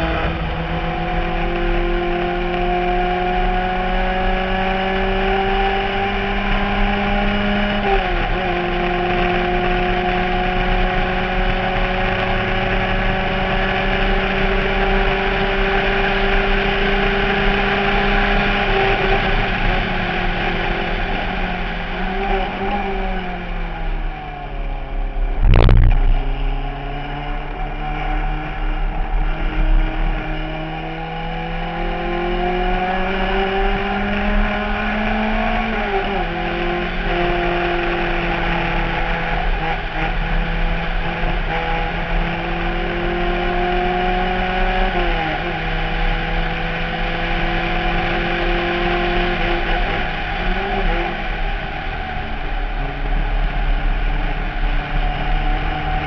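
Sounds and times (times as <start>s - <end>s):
race car engine at speed: 0.0s - 56.0s
wind noise: 18.0s - 30.4s
sharp thump: 25.4s - 26.4s.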